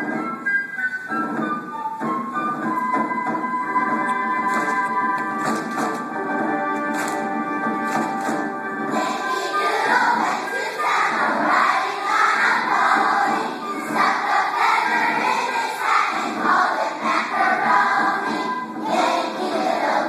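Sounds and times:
children's choir singing: 8.8 - 20.0.

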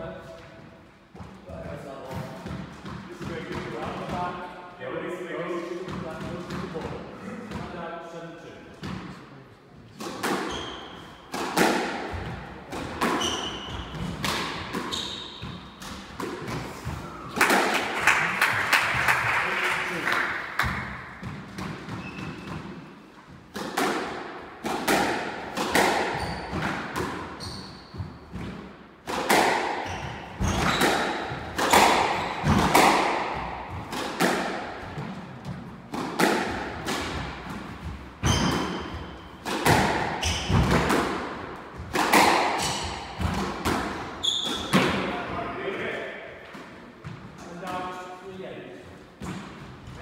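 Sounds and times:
shoes squeaking on wooden floor: 10.4 - 11.2, 13.0 - 14.1, 14.7 - 15.9, 21.9 - 22.7, 26.1 - 26.6, 27.3 - 28.4, 29.8 - 32.5, 37.8 - 39.4, 40.2 - 40.7, 44.2 - 44.8
squash ball cracks with echo: 11.3 - 13.2, 13.9 - 14.9, 17.3 - 19.3, 23.5 - 27.4, 28.3 - 37.8, 38.5 - 45.2.

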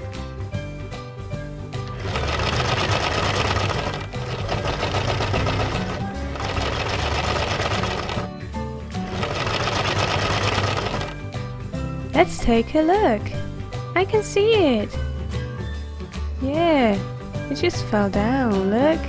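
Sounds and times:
toy washing machine rattling buzz: 1.9 - 8.3, 9.0 - 11.2.

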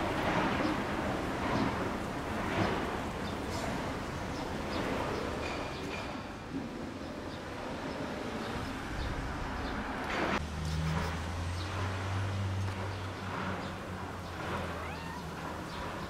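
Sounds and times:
street noise: 0.0 - 16.0.

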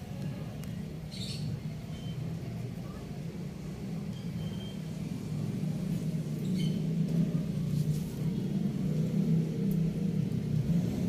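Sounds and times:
motor vehicle engine humming: 0.0 - 11.0.

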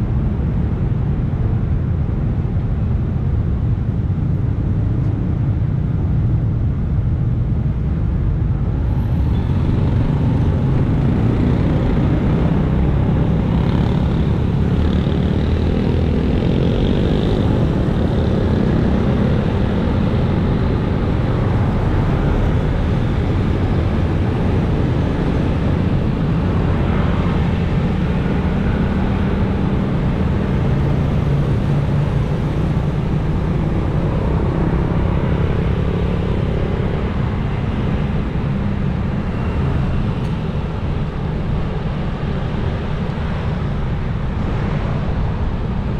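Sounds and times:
wind rumble on microphone: 0.0 - 45.9
scooters and motorcycles passing: 9.2 - 41.0.

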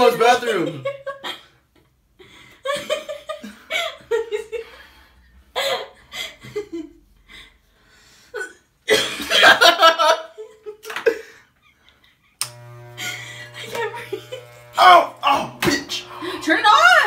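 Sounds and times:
person laughing: 13.0 - 17.0.

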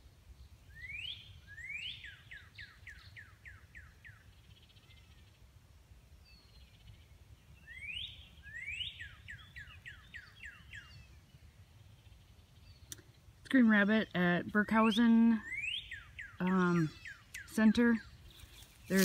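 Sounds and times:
bird singing whistled notes: 0.4 - 5.3, 6.2 - 12.9, 14.6 - 19.0
faint high bird calls: 0.7 - 5.4, 7.6 - 11.3, 14.7 - 19.0.

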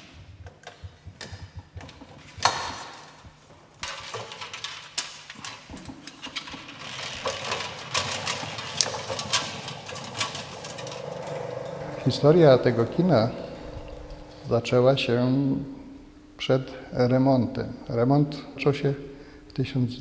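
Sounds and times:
film rewind motor running: 0.0 - 15.4.

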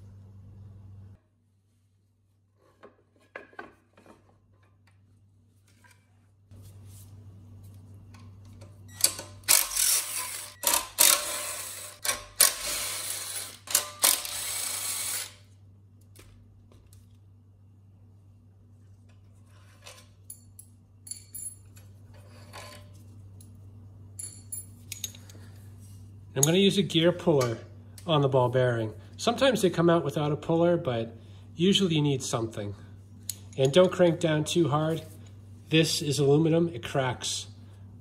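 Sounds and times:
cordless driver spinning bolts: 9.1 - 15.3
metallic clicks and clinks: 20.2 - 21.9, 24.2 - 25.4.

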